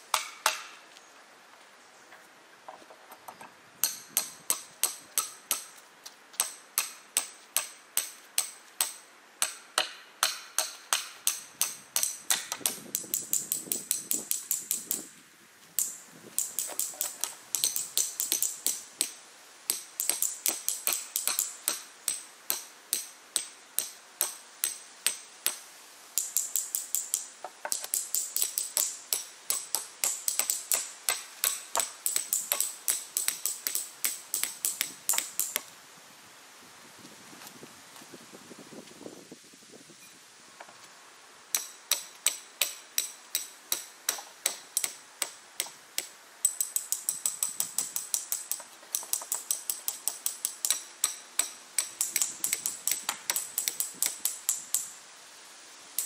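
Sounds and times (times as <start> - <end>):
hammers striking steel pins: 3.8 - 5.8, 6.4 - 15.0, 15.8 - 25.6, 26.2 - 35.6, 41.5 - 54.9.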